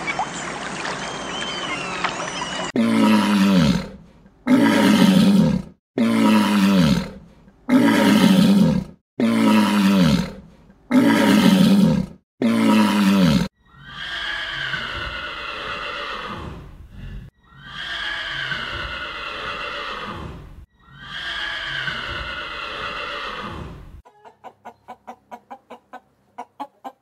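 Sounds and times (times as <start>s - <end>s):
higher-pitched animal call: 17.4s - 23.7s.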